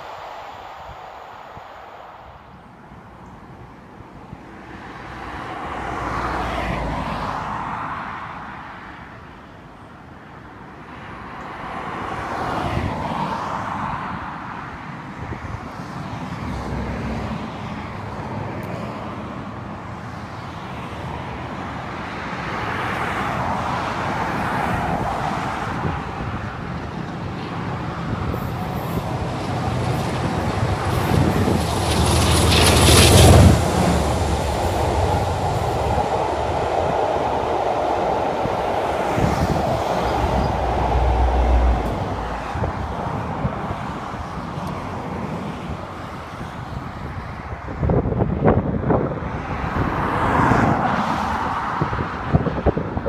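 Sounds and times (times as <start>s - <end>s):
rush of train coaches: 0.0s - 3.3s, 4.4s - 9.0s, 11.2s - 47.6s
diesel locomotive passing: 0.0s - 10.0s, 15.8s - 47.2s.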